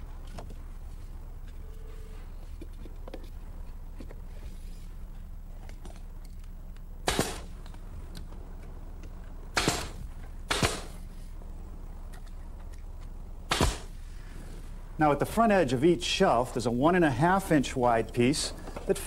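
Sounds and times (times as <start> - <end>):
low hum: 0.0 - 18.9
pneumatic nailer firing: 7.0 - 7.6, 9.5 - 11.0, 13.5 - 14.0.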